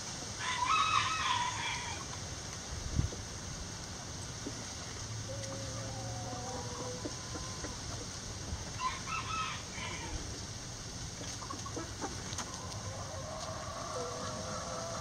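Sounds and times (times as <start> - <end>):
chickens clucking: 4.2 - 15.0.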